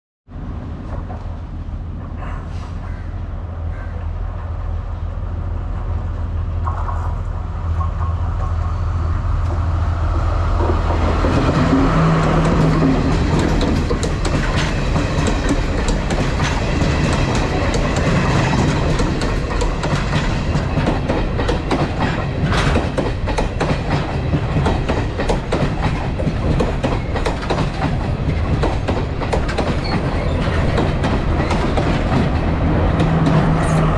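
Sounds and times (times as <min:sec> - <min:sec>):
train drone: 0:00.3 - 0:33.9
train coaches rumbling: 0:00.4 - 0:33.9
wheel clicks over rail joints: 0:10.6 - 0:33.6.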